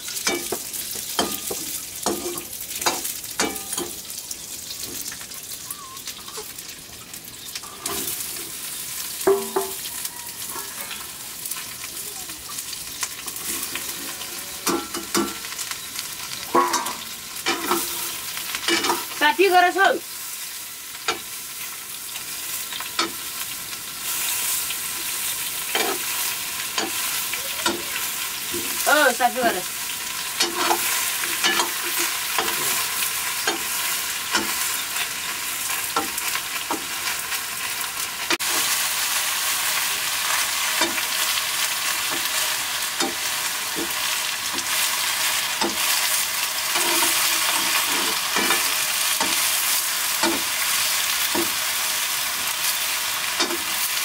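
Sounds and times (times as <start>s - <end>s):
vegetables sizzling in oil: 0.0s - 54.0s
metal ladle scraping wok: 30.4s - 34.8s, 42.0s - 50.5s.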